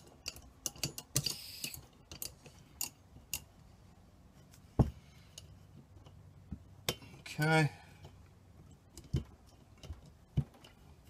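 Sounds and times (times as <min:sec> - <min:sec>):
metallic clicks and scrapes: 0:00.0 - 0:03.6.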